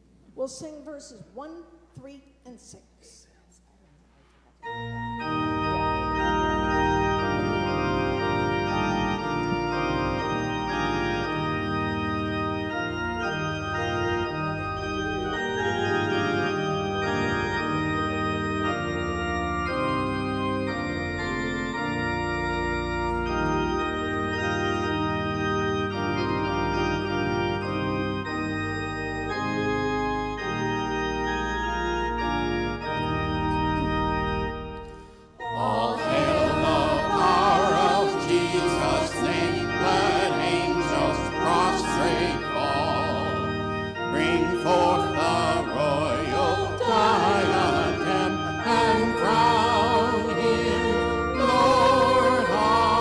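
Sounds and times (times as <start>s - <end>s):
church organ playing chords: 4.6s - 53.0s.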